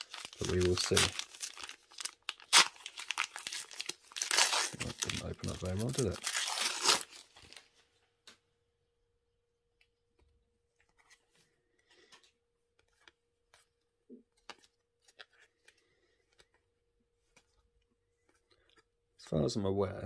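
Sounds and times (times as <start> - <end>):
rustling of foil pack and cards: 0.0 - 7.8.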